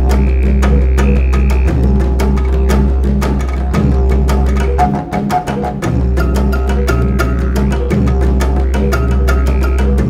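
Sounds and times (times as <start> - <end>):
deep bass notes: 0.0 - 10.0
light percussion beat: 0.0 - 10.0.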